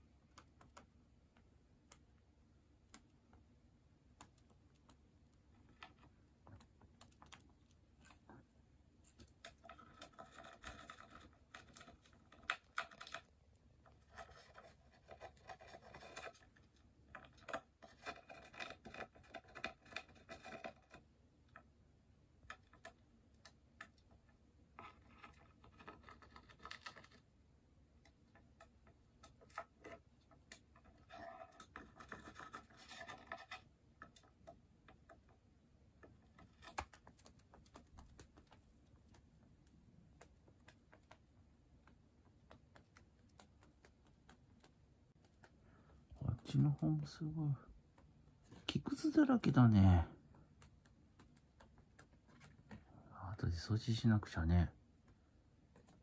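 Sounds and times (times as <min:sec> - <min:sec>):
bird beak gnawing wood: 0:09.0 - 0:21.6, 0:22.4 - 0:27.3, 0:28.0 - 0:35.4, 0:36.0 - 0:46.1, 0:50.4 - 0:52.9.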